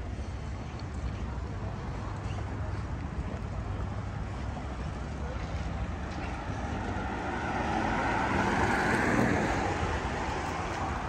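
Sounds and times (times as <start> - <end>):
vehicle passing by: 5.8 - 11.0.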